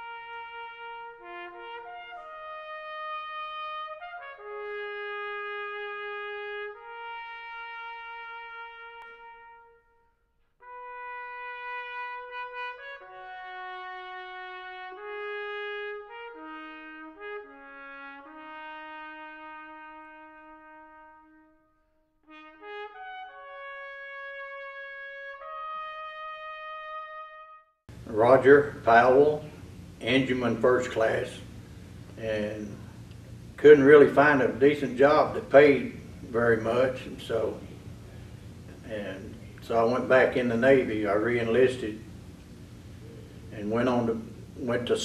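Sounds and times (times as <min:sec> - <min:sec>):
slow brass music: 0:00.0 - 0:29.6.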